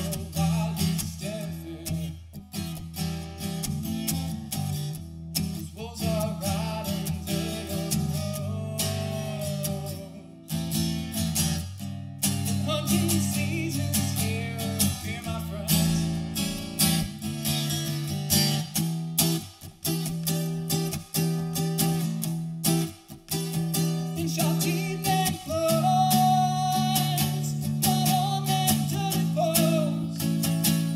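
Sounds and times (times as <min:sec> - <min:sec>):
man singing: 0:00.0 - 0:02.4, 0:05.5 - 0:10.5, 0:12.4 - 0:16.7, 0:23.7 - 0:30.9
acoustic guitar strumming: 0:00.0 - 0:30.9.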